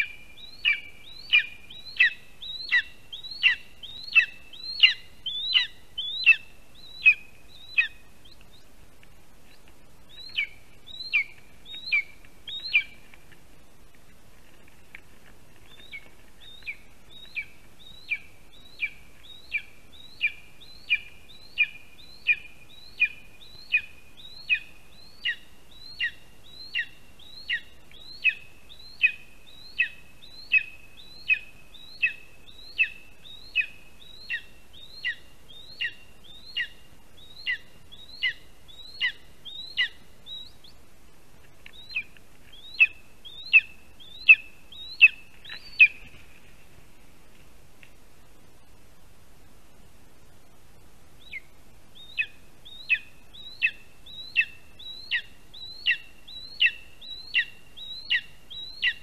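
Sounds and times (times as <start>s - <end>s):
eagle yelping calls: 0.0s - 8.6s, 15.8s - 40.6s, 51.2s - 59.0s.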